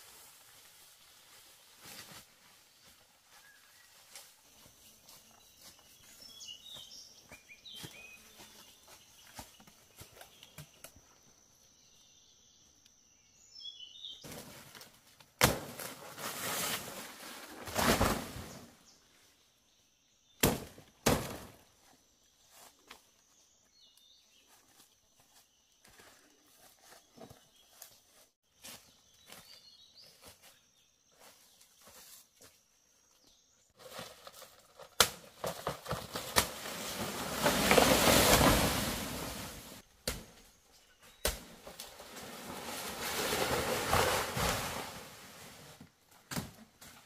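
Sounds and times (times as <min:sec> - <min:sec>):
footsteps through undergrowth: 0:00.0 - 0:10.5, 0:22.4 - 0:32.6, 0:33.8 - 0:39.9
leafy rustling: 0:14.2 - 0:18.8, 0:33.8 - 0:39.9, 0:41.6 - 0:45.9
machete chopping plant trunk: 0:15.4 - 0:15.9, 0:20.4 - 0:21.5, 0:35.0 - 0:36.6, 0:40.0 - 0:40.4, 0:41.2 - 0:41.6, 0:46.3 - 0:46.6.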